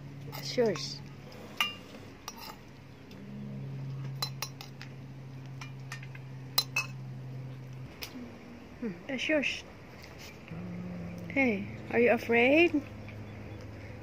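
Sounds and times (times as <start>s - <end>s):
low steady hum: 0.0s - 14.0s
metal spoon clinking on bowls: 0.3s - 1.0s, 1.6s - 2.6s, 4.1s - 4.8s, 5.6s - 7.0s.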